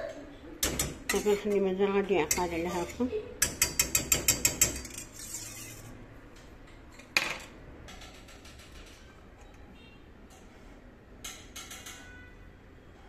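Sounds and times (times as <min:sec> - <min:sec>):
whisk clicking against pot: 0:03.4 - 0:05.0.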